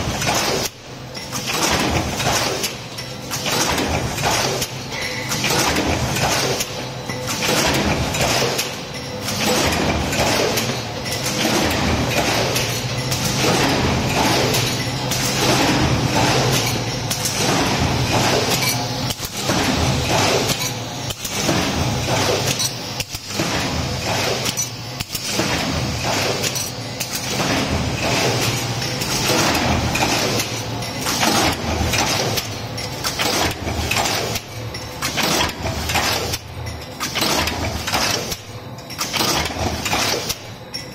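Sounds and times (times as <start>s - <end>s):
machine hum: 0.0s - 40.9s
metallic clanks and clinks: 1.1s - 21.6s, 22.2s - 23.6s, 24.2s - 40.9s.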